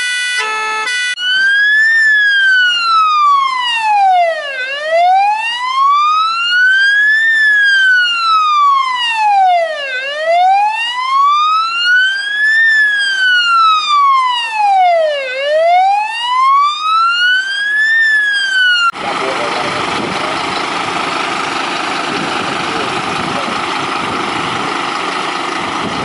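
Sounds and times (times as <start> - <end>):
fire engine siren wailing: 0.0 - 26.0.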